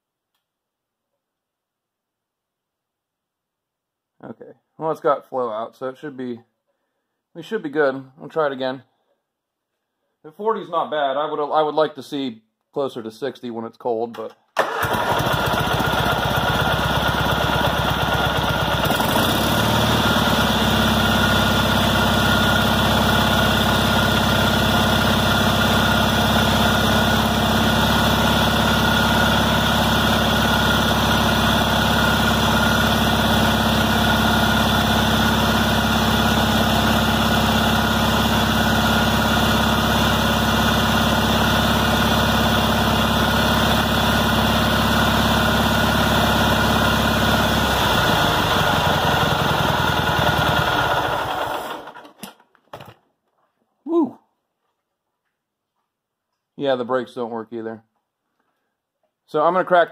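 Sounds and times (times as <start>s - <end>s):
garden tractor engine running: 14.6s - 52.4s.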